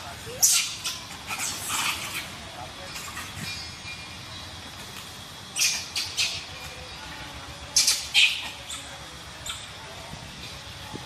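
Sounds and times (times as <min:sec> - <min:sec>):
monkeys screeching: 0:00.1 - 0:04.1, 0:05.5 - 0:07.0, 0:07.6 - 0:09.8.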